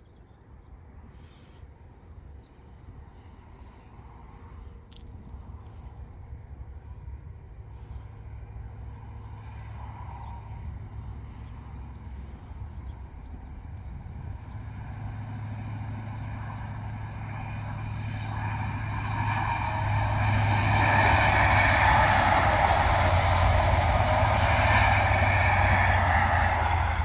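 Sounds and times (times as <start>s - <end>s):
diesel engine drone: 4.0s - 27.0s
train wheels rushing on rails: 16.8s - 27.0s.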